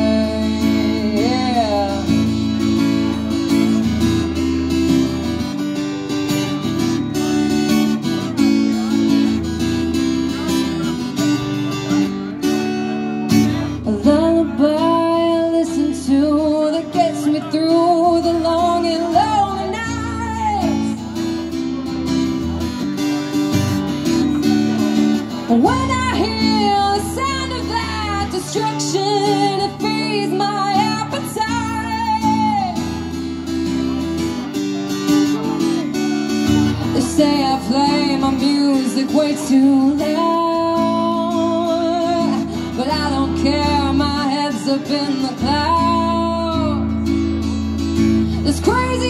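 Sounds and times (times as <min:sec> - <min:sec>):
woman singing: 0:00.0 - 0:02.6, 0:13.8 - 0:21.0, 0:25.5 - 0:32.9, 0:36.8 - 0:47.0, 0:48.4 - 0:49.0
acoustic guitar strumming: 0:00.0 - 0:49.0.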